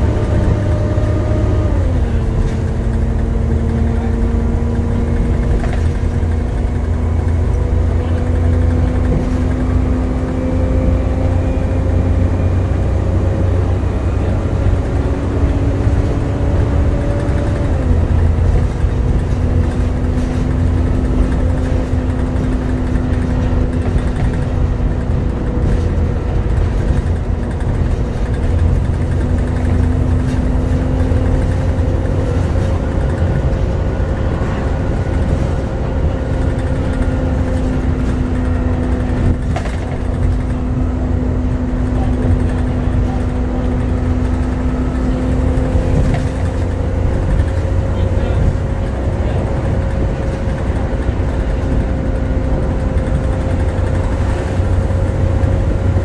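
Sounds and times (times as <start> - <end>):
bus engine drone: 0.0 - 56.0
bus whine: 0.0 - 56.0
road rumble: 0.0 - 56.0.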